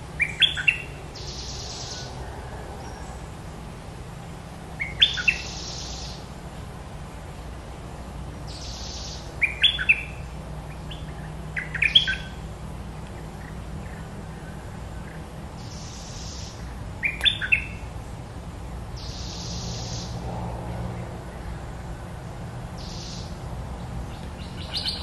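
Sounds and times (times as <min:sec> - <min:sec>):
songbirds chirping: 0:00.0 - 0:25.0
soft hissing bursts: 0:15.6 - 0:16.6.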